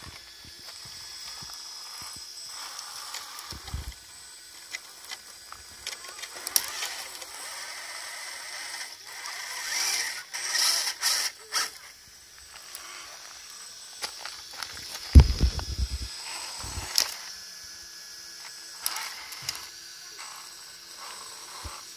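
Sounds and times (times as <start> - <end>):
electric motor and drivetrain whining: 0.0 - 21.9
tyres clicking and scraping on rock: 14.0 - 17.1.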